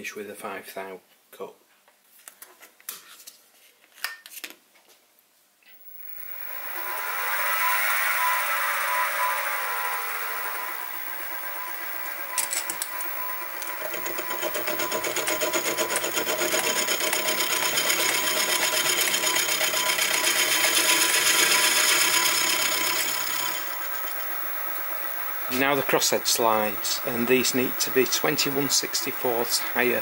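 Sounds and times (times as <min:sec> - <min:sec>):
mill motor whining: 0:05.8 - 0:30.0
milling cutter chatter: 0:10.8 - 0:21.2.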